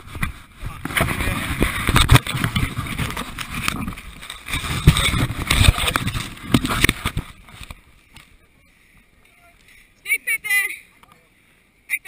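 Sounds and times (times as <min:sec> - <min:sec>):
camera knocking and rustling on clothing: 0:00.0 - 0:08.2.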